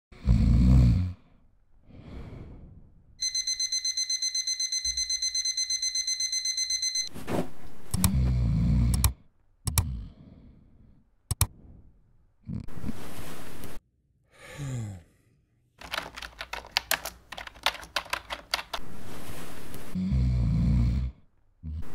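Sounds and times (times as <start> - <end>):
alarm clock beeping: 3.2 - 7.1.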